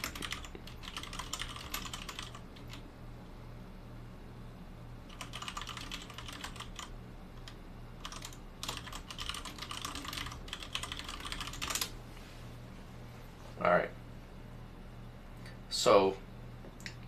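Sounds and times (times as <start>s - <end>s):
fast keyboard typing: 0.0s - 2.8s, 5.1s - 11.9s
steady low hum: 0.0s - 17.0s.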